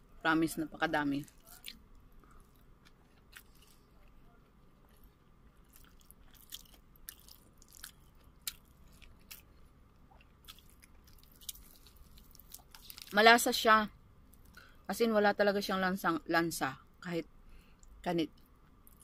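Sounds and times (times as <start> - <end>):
low steady hum: 0.0 - 19.0
person chewing food: 1.2 - 13.1.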